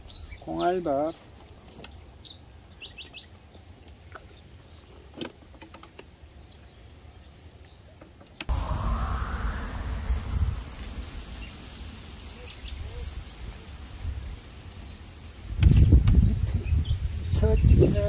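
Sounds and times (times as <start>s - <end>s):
wind rumbling on microphone: 8.5s - 18.0s.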